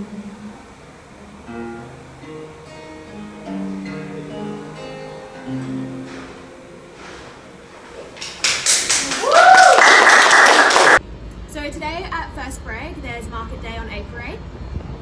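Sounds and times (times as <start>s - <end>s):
acoustic guitar plucked notes: 1.1s - 8.3s.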